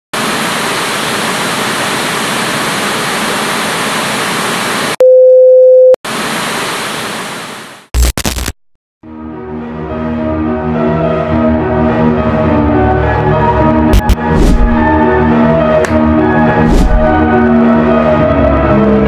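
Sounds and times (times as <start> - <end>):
short glitch bursts: 8.0 - 8.6.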